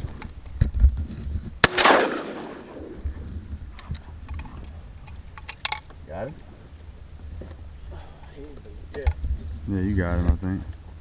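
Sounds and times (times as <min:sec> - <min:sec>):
shotgun shot: 0:01.6 - 0:03.4.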